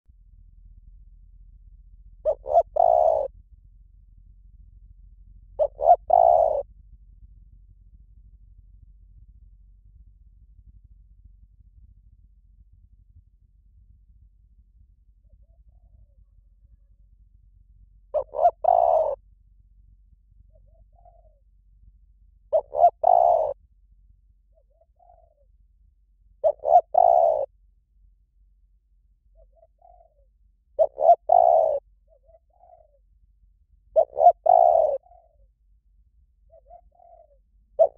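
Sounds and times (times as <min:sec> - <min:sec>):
dove cooing: 0:02.2 - 0:03.3, 0:05.6 - 0:06.7, 0:15.2 - 0:16.9, 0:18.1 - 0:19.2, 0:20.4 - 0:21.5, 0:22.5 - 0:23.6, 0:24.5 - 0:25.5, 0:26.4 - 0:27.6, 0:29.3 - 0:33.2, 0:33.9 - 0:35.5, 0:36.4 - 0:37.9.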